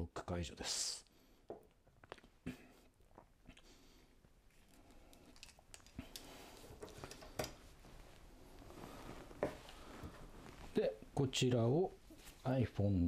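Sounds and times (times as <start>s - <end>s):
light rustling of handling: 4.5s - 11.2s.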